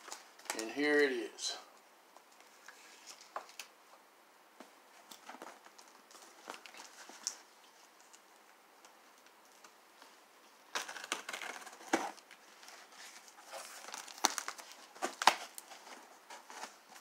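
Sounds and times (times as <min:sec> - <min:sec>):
tape tearing: 0:10.7 - 0:17.0
cardboard flaps scraping and rustling: 0:10.8 - 0:17.0.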